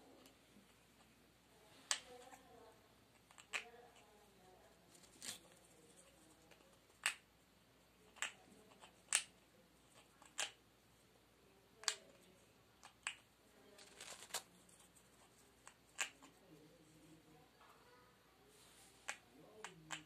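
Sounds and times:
parrot beak clicking on bedding: 0:15.6 - 0:16.4.

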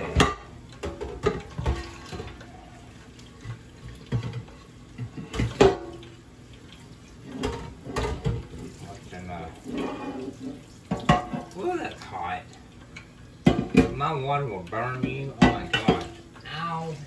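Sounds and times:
pan clanking against sink: 0:00.0 - 0:02.4, 0:04.0 - 0:06.0, 0:07.3 - 0:08.6, 0:10.9 - 0:11.6, 0:14.9 - 0:16.2
kitchen tap running: 0:00.0 - 0:17.0.

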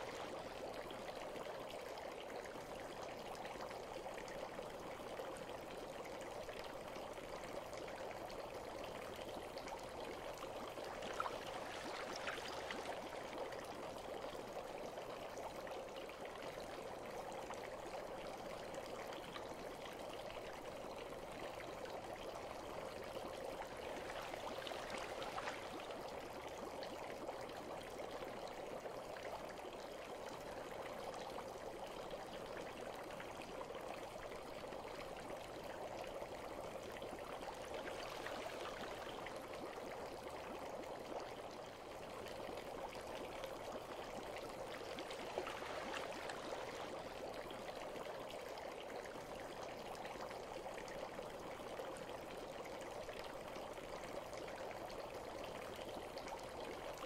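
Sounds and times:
running water: 0:00.0 - 0:02.6, 0:07.0 - 0:14.8, 0:22.6 - 0:26.5, 0:36.6 - 0:40.4, 0:41.3 - 0:50.6.

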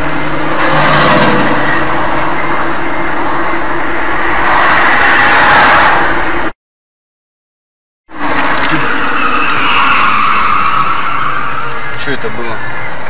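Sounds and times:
low engine hum: 0:00.0 - 0:06.5
vehicle engine and road noise: 0:00.0 - 0:06.6, 0:08.1 - 0:13.0.

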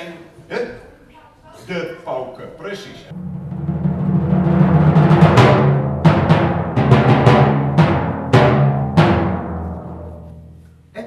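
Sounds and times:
timpani roll and strokes: 0:03.1 - 0:10.6.

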